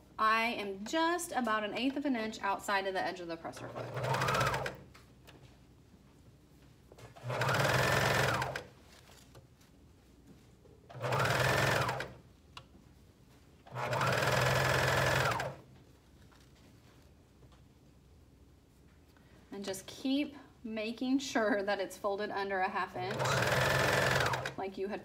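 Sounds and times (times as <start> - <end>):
sewing machine motor whirring: 3.6 - 4.8, 7.2 - 8.7, 10.9 - 12.2, 13.7 - 15.6, 23.1 - 24.6.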